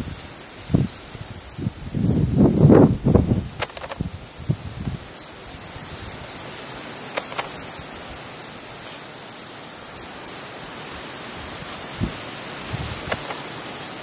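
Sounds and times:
outdoor background hiss: 0:00.0 - 0:14.0
faint ticks: 0:07.1 - 0:07.7, 0:13.0 - 0:13.5.

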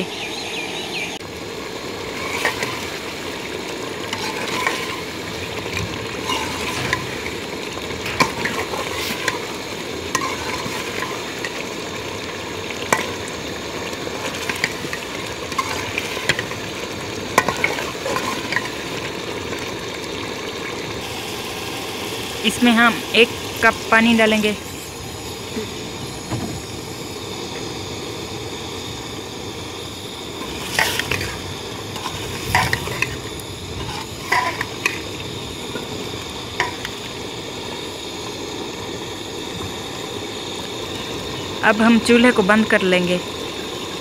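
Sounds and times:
steady sizzle: 0:00.0 - 0:44.0
ladle stirring curry: 0:04.0 - 0:05.2.

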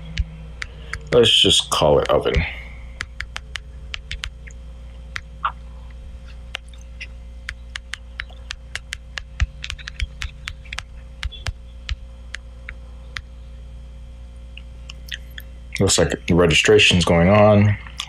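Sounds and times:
steady low hum: 0:00.0 - 0:18.0
touchscreen keyboard clicks: 0:03.0 - 0:04.4, 0:07.5 - 0:12.0.

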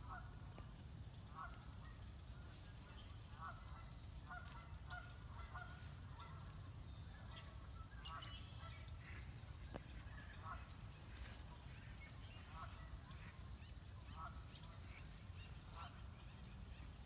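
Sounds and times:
turkeys yelping: 0:03.2 - 0:08.9.

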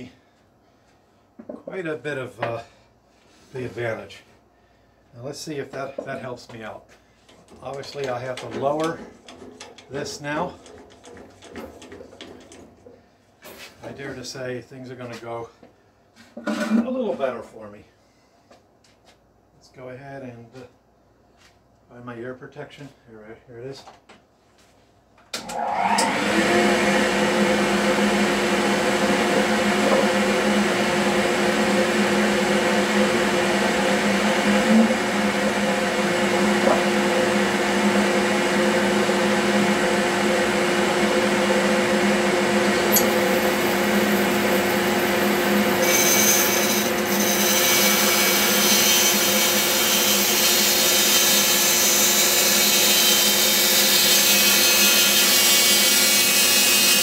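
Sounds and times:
bandsaw motor humming: 0:25.4 - 0:57.0
saw blade cutting wood: 0:42.8 - 0:57.0.

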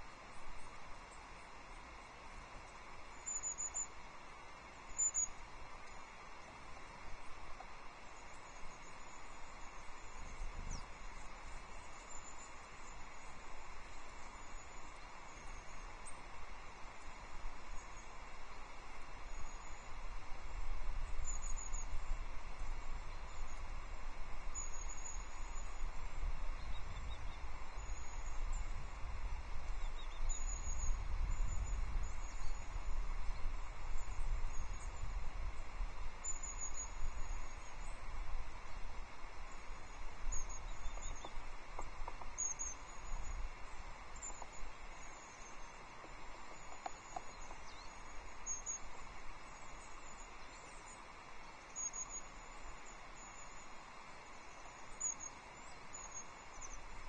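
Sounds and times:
songbirds chirping: 0:00.0 - 0:57.0
wind rumble on microphone: 0:06.9 - 0:11.9, 0:12.8 - 0:50.8.

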